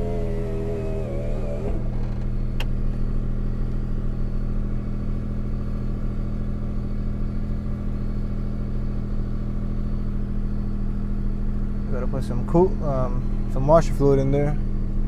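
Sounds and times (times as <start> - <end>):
car engine fast idling: 0.0 - 15.0
sharp click: 2.2 - 2.8.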